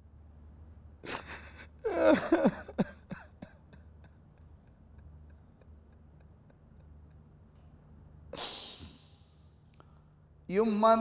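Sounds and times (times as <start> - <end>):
man weeping: 1.1 - 7.3.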